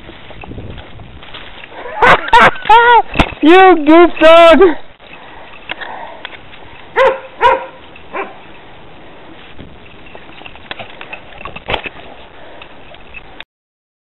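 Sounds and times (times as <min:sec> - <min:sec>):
dog barking: 0:01.8 - 0:02.3, 0:07.0 - 0:08.4.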